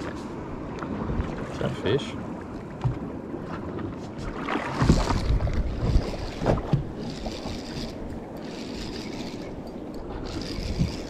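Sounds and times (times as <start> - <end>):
water slapping against boat: 0.0 - 11.0
wind buffeting microphone: 2.8 - 11.0.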